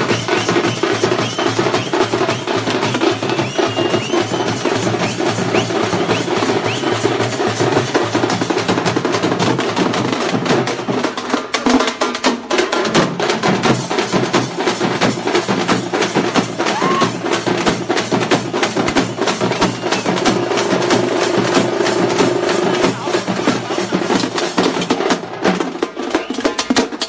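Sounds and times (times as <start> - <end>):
fast dense drumming: 0.0 - 27.0.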